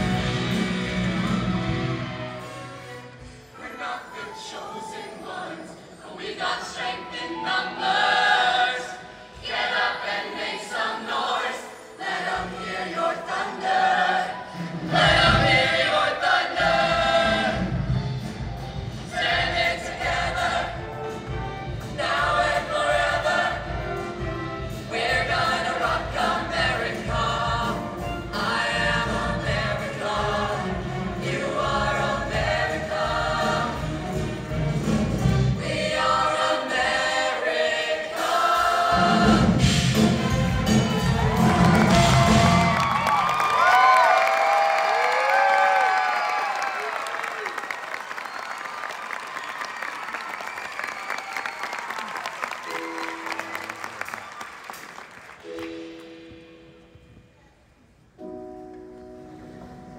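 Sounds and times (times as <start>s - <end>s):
live instrumental accompaniment: 0.0s - 3.5s, 16.7s - 35.9s, 38.2s - 43.5s
choir singing: 0.0s - 18.0s, 18.9s - 42.9s.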